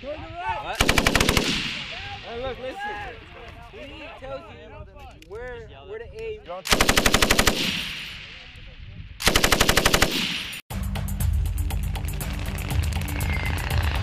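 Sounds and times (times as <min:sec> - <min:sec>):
machine gun bursts with echo: 0:00.8 - 0:02.0, 0:06.7 - 0:08.3, 0:09.2 - 0:10.6.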